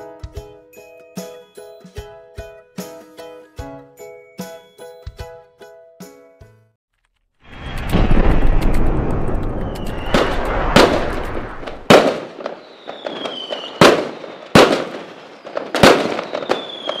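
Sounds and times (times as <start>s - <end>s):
fireworks crackling: 7.4s - 17.0s
loud firework bangs: 7.6s - 17.0s
falling firework whistles: 9.2s - 17.0s.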